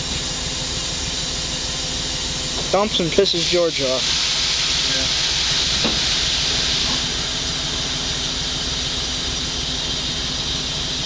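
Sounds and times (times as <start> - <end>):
compressed air hissing: 2.7 - 11.0.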